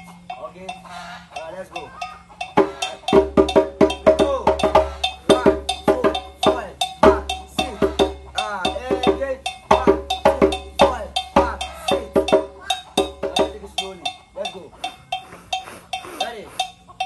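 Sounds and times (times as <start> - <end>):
hand drums playing quick rhythm: 2.6 - 13.9.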